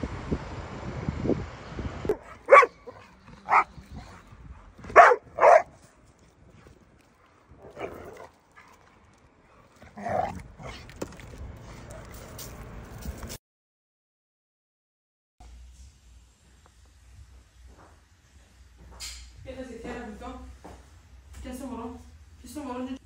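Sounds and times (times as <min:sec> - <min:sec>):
dog barking: 0:02.1 - 0:04.2, 0:04.8 - 0:05.8.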